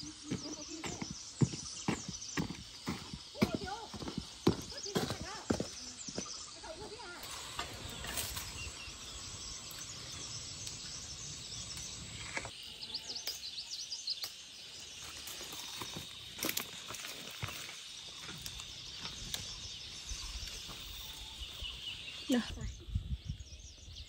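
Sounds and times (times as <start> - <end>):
birds chirping: 0.0 - 24.0
high insect drone: 0.0 - 24.0.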